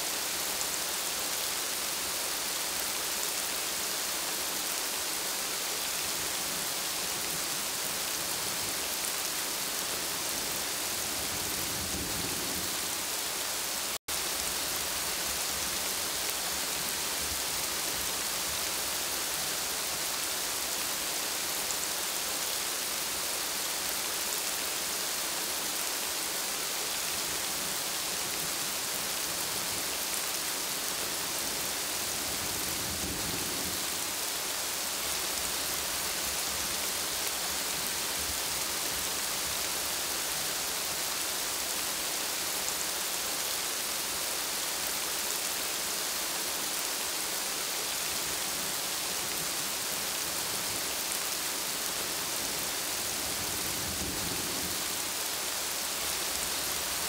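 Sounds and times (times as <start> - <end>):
rain falling on leaves: 0.0 - 57.0.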